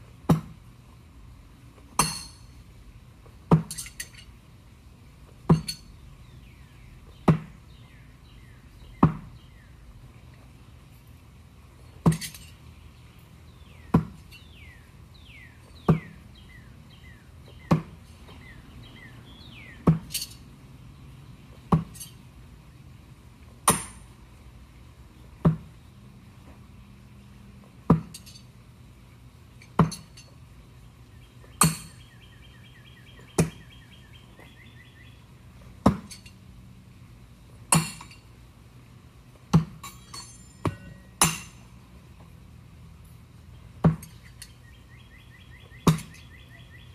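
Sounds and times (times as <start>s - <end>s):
light metallic clinks: 3.7s - 4.3s, 28.1s - 28.5s, 29.6s - 30.4s, 39.8s - 41.6s.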